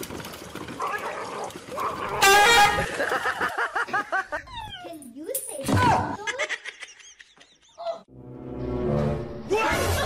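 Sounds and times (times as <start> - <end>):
loud horn blast: 2.2 - 2.9.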